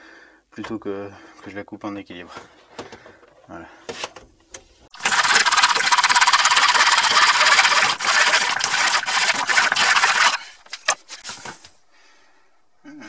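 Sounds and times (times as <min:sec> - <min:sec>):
hand saw cutting plastic pipe: 0:05.0 - 0:11.6.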